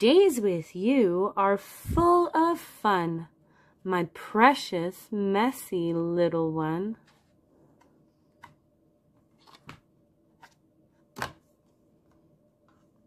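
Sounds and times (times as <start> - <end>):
book pages tapping and rustling: 10.4 - 11.5.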